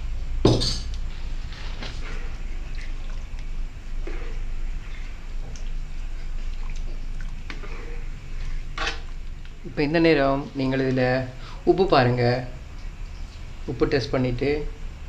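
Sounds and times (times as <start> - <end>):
low steady hum: 0.0 - 15.0
spatula stirring thick sauce: 6.2 - 9.2.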